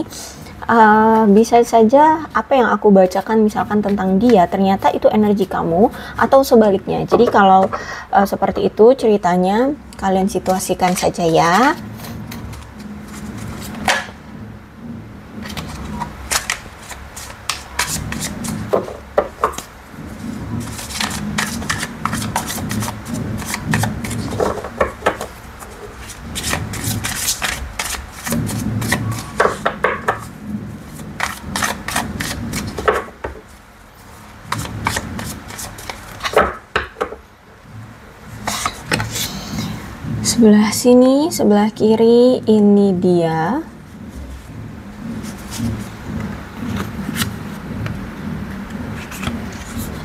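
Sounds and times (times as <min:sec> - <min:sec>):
cards being shuffled: 0:12.0 - 0:14.2, 0:15.4 - 0:19.7, 0:20.5 - 0:33.1, 0:34.5 - 0:36.6, 0:38.4 - 0:39.7, 0:49.0 - 0:50.0
low background rumble: 0:37.4 - 0:50.0.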